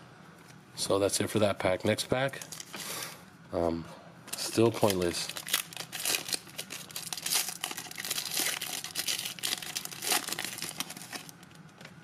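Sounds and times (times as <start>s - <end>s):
plastic wrapper crinkling: 4.3s - 11.7s.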